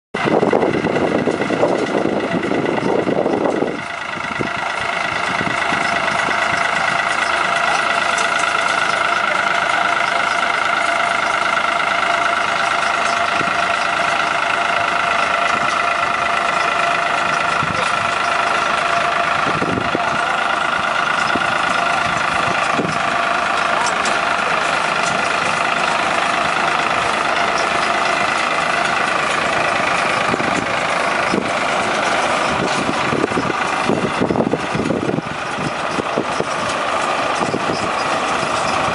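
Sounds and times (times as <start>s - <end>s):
tractor engine running: 0.1s - 38.9s
baler mechanism whine: 0.2s - 38.9s
rough rumble: 0.2s - 38.9s.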